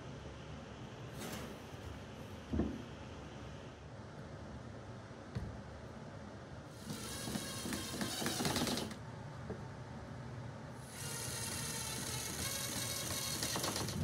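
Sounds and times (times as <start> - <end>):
cordless driver running screws: 6.8 - 9.0, 10.9 - 14.0.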